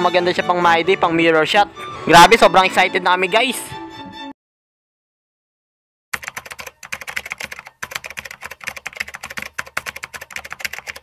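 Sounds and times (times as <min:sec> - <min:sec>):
computer keyboard typing: 0:06.2 - 0:11.0.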